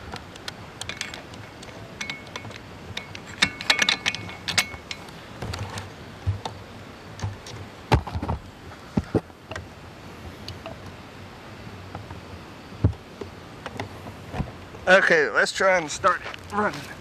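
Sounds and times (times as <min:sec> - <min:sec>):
metal parts clinking: 0:00.4 - 0:05.9.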